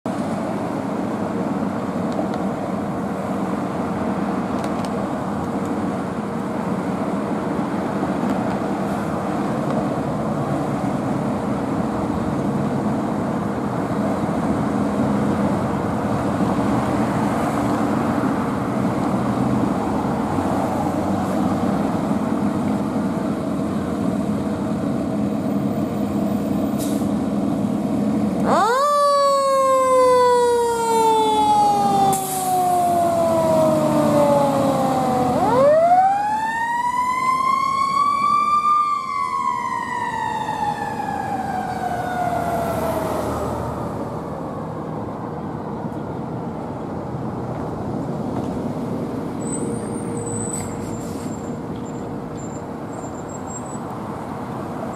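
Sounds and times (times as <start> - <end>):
siren wailing: 28.4 - 44.0.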